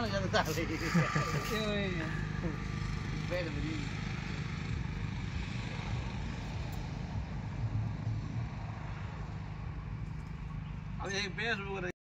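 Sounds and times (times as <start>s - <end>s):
diesel engine idling: 0.0s - 7.6s.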